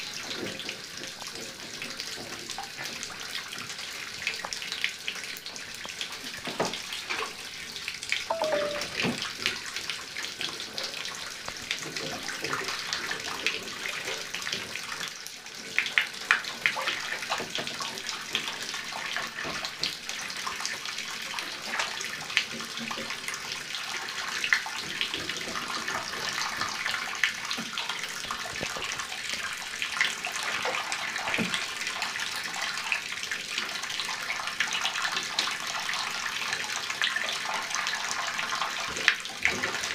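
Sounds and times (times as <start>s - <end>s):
water running into bathtub: 9.5s - 39.9s.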